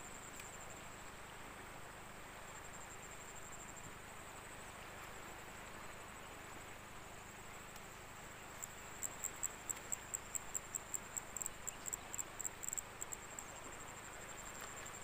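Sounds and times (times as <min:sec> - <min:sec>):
insect high-pitched trill: 0:08.7 - 0:15.0.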